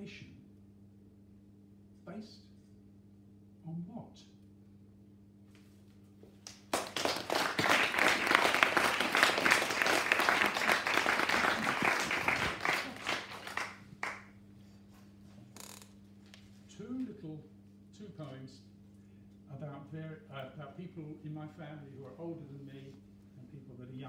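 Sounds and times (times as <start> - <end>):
small audience applauding: 6.4 - 14.4.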